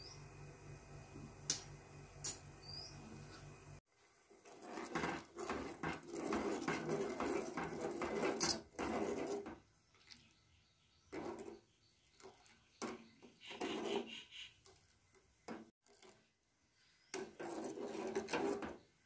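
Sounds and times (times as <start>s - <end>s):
ladle scraping metal pan: 4.3s - 9.6s, 11.1s - 11.6s, 12.8s - 14.3s, 17.1s - 18.9s.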